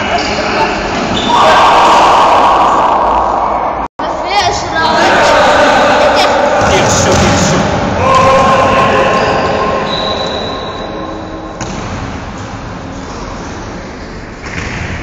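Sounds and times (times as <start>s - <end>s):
echoing sports hall din: 0.0s - 15.0s
squealing tones: 8.8s - 11.5s.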